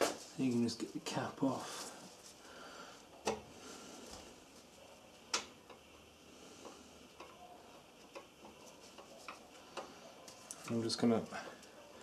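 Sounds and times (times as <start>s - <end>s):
faint clicks and taps: 3.1s - 3.5s, 4.1s - 12.0s.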